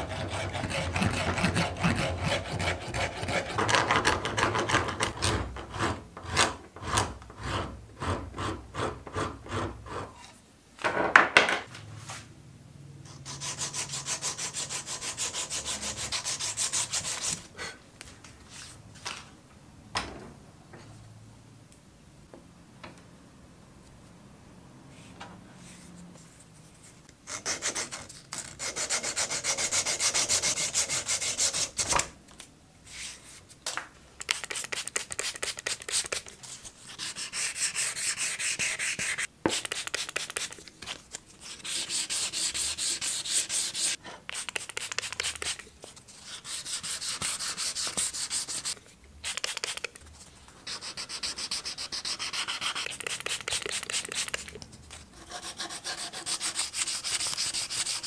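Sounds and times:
sandpaper rubbing on a handle: 0:50.7 - 0:54.5.

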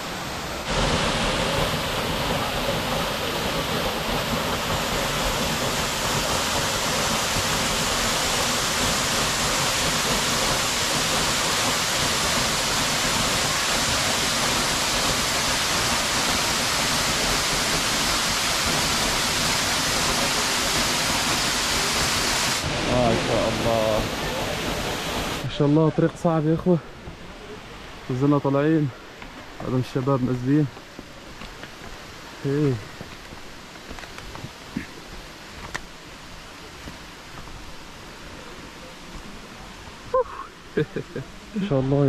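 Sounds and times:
waterfall rushing: 0:00.0 - 0:42.0.

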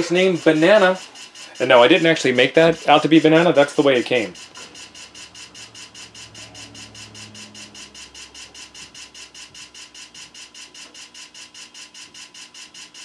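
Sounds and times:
computer ticking rapidly: 0:00.0 - 0:13.0
low hum: 0:04.3 - 0:10.8.

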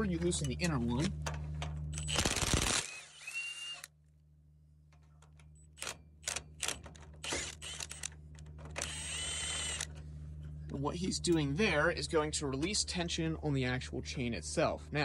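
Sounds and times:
power tool motor whining: 0:01.9 - 0:03.9, 0:05.8 - 0:08.1, 0:08.7 - 0:09.9.

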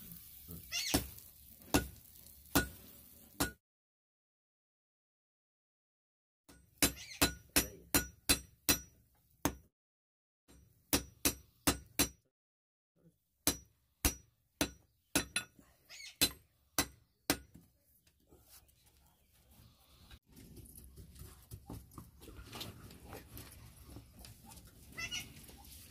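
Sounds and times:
hammer clinking on anvil: 0:13.5 - 0:15.6.

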